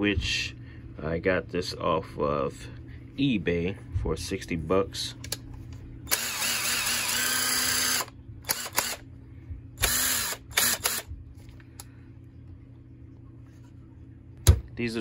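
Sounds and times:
impact wrench motor whirring: 6.1s - 9.0s, 9.8s - 11.1s.

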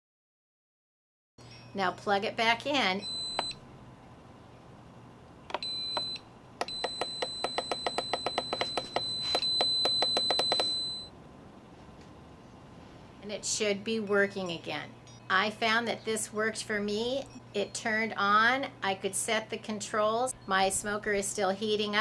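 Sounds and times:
long steady beep: 3.0s - 3.6s, 5.5s - 11.1s.

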